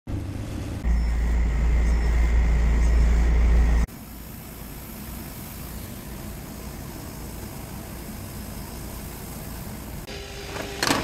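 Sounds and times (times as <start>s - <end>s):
fans humming: 0.1s - 11.0s
faint steady whine: 0.7s - 11.0s
laser cutter hiss: 3.8s - 10.8s.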